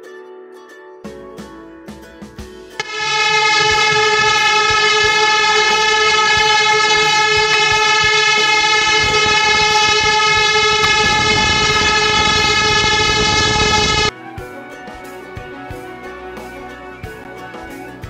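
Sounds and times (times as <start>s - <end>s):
horn long steady note: 2.8s - 14.1s
low rumble: 2.8s - 14.1s.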